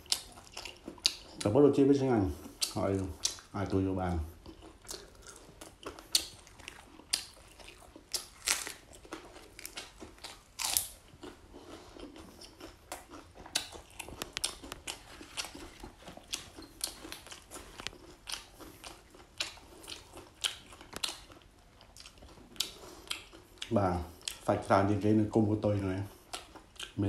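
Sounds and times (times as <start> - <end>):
chewing crisp meat: 0.0 - 27.0.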